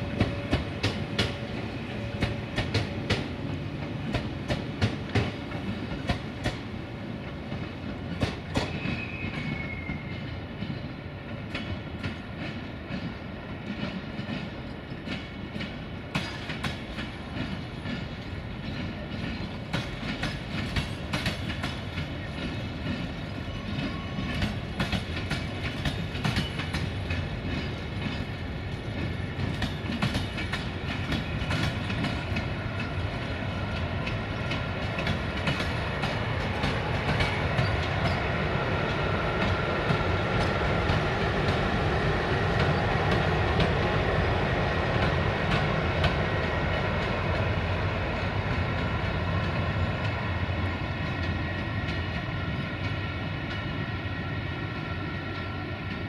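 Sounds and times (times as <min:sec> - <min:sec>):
train rumble: 0:00.0 - 0:56.0
wheels clicking over rail joints: 0:11.4 - 0:41.8.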